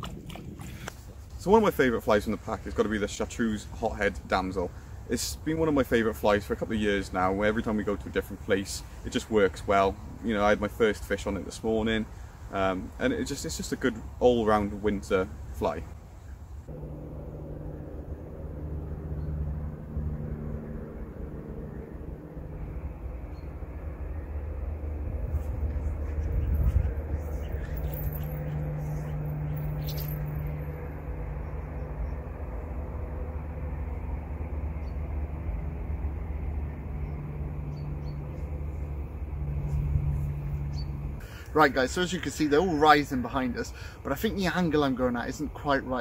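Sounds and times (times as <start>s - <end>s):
low rumble: 16.6s - 41.3s
distant engine humming: 16.6s - 45.2s.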